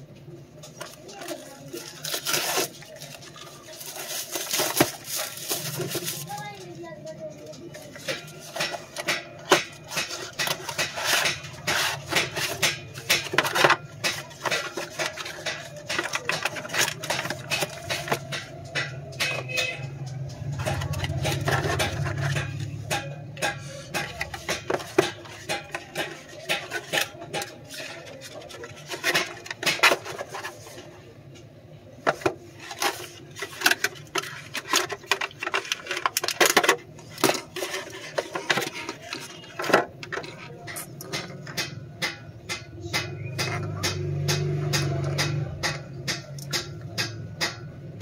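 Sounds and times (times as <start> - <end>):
packaging being handled: 0.6 - 6.9, 7.6 - 19.6.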